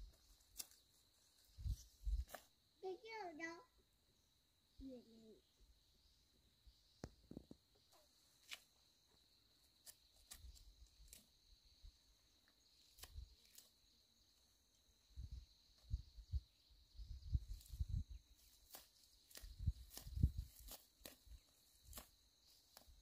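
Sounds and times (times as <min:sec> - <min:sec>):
dry grass snapping and rustling: 0:00.1 - 0:00.9, 0:18.4 - 0:23.0.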